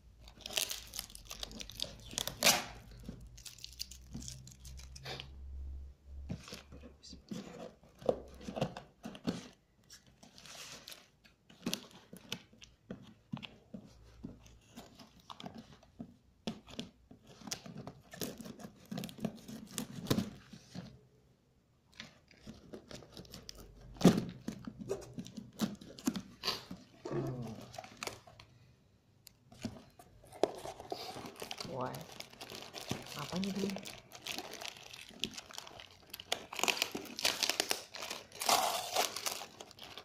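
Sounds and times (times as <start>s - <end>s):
scissors slitting packing tape: 0.4s - 2.8s, 36.5s - 40.0s
tape tearing: 0.4s - 5.2s, 29.5s - 40.0s.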